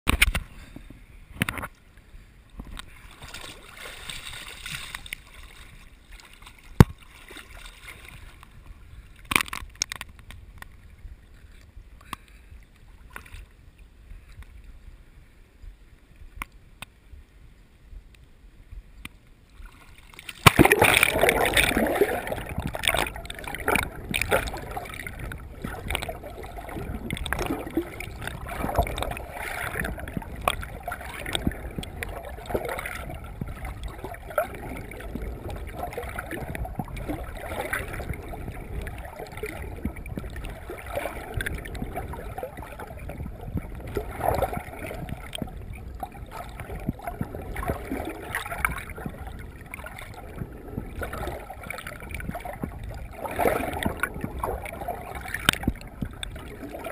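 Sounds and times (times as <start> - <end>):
muffled water sloshing underwater: 0.1 - 56.9
small clicks and knocks: 9.2 - 10.8.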